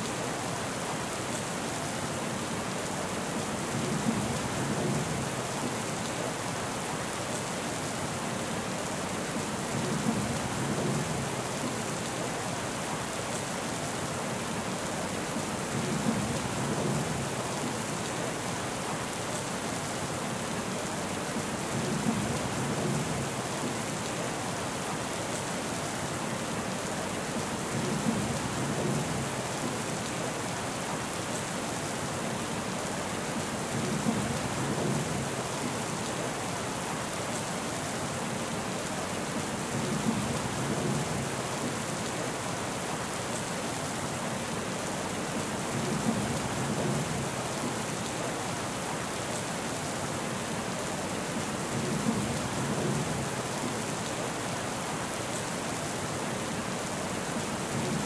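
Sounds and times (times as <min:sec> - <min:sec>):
rain hiss: 0:00.0 - 0:58.0.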